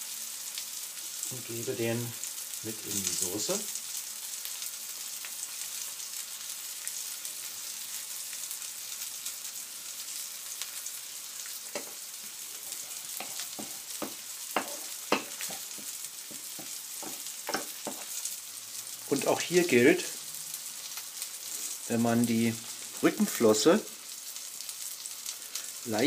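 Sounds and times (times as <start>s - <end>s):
fish sizzling in a grill pan: 0.0s - 26.0s
spoon knocking against pan: 11.7s - 12.0s, 13.2s - 18.1s
wooden spoon stirring sauce: 11.7s - 18.3s.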